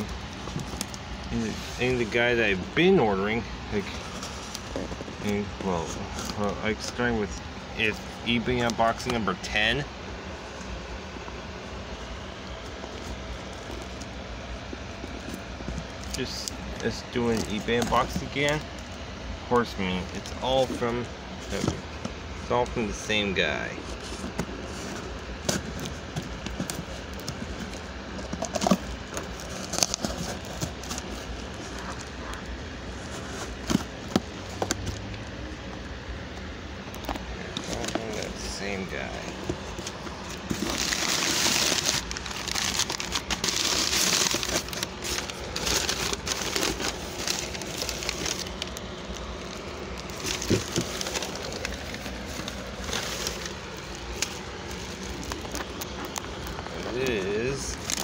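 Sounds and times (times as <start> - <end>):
cardboard rustling: 0.0 - 35.8, 36.8 - 58.0
tape ripping: 39.5 - 58.0.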